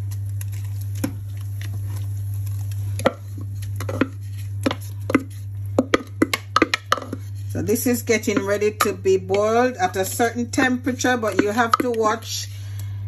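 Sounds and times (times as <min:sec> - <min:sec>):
low hum: 0:00.0 - 0:13.0
wooden spoon scraping and tapping: 0:03.0 - 0:12.4.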